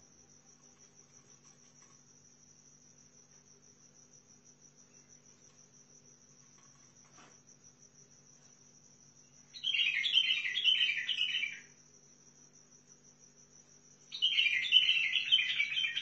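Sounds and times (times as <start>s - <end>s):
high insect trill: 0.0s - 16.0s
bird singing repeated notes: 9.6s - 11.6s, 14.1s - 16.0s.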